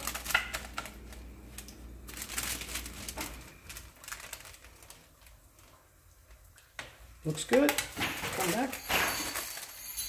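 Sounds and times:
plastic sheet crinkling: 0:00.0 - 0:10.0.

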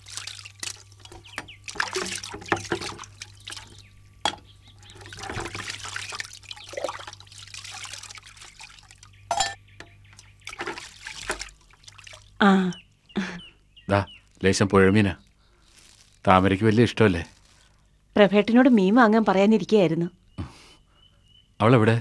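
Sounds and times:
metal pots clinking: 0:00.0 - 0:11.8
water splashing and trickling: 0:00.0 - 0:12.6, 0:13.9 - 0:17.7
scrubbing pots: 0:00.0 - 0:13.4.

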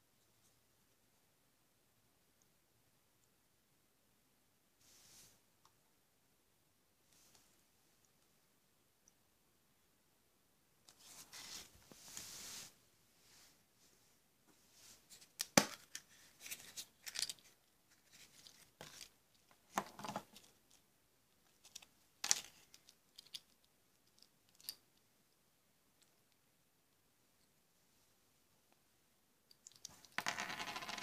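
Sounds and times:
plastic toy parts rustling: 0:15.0 - 0:20.8, 0:21.4 - 0:24.8.

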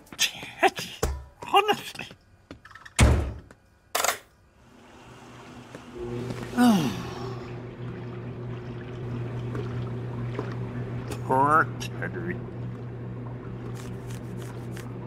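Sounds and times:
low motor hum: 0:04.7 - 0:15.0.

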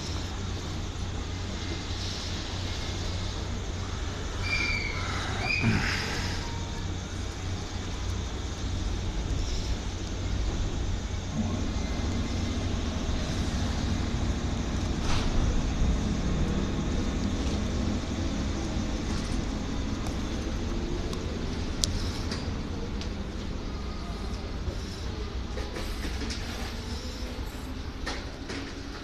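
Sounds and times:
electric train humming: 0:00.0 - 0:29.0.

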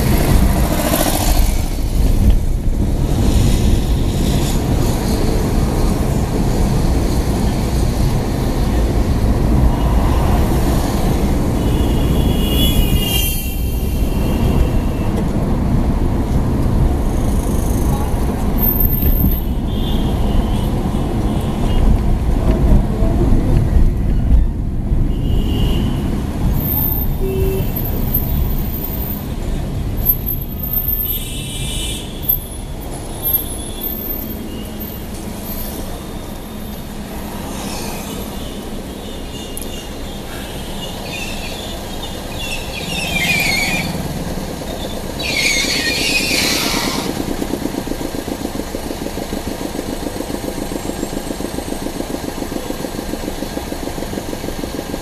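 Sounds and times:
car engine and tyre rumble: 0:00.0 - 0:55.0
car horns honking: 0:11.6 - 0:15.2.

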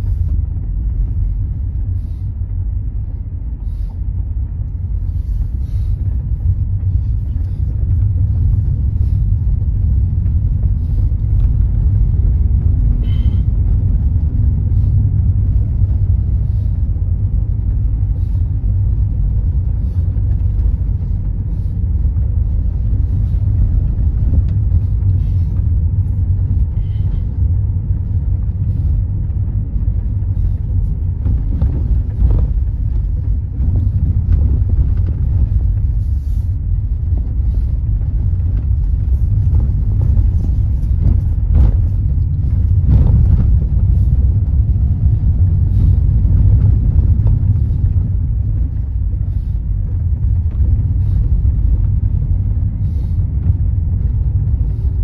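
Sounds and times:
car engine and tyres rumbling: 0:00.0 - 0:55.0
faint knocks from bumpy road: 0:38.2 - 0:48.5.

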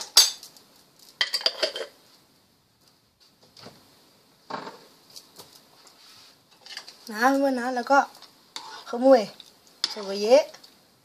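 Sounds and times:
metal spoon clinking saucepan: 0:09.8 - 0:10.2.

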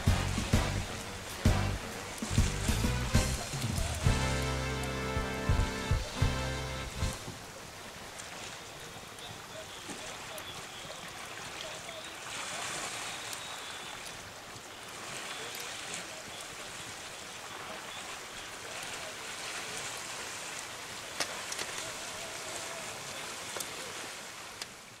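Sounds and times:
campfire cracks: 0:00.0 - 0:10.8, 0:17.8 - 0:24.8.

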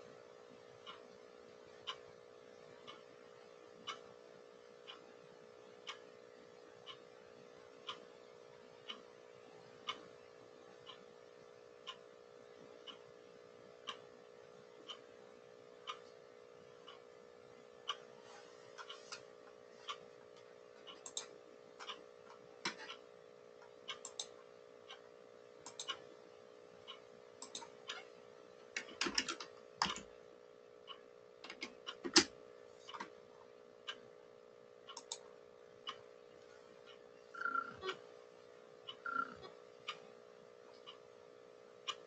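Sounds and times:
steady electrical hum: 0:00.0 - 0:42.0
keyboard and mouse clicks: 0:20.9 - 0:22.0, 0:25.6 - 0:26.0, 0:27.4 - 0:28.0, 0:28.8 - 0:30.0, 0:31.4 - 0:32.3.

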